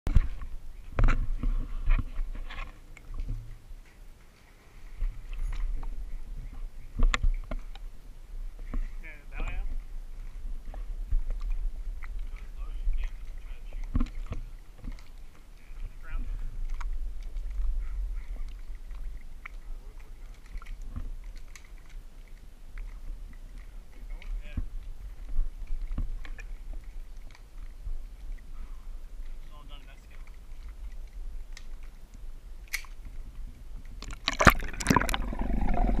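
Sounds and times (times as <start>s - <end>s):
pool water lapping: 0.1s - 36.0s
small clicks and ticks: 18.4s - 28.4s, 29.2s - 33.1s.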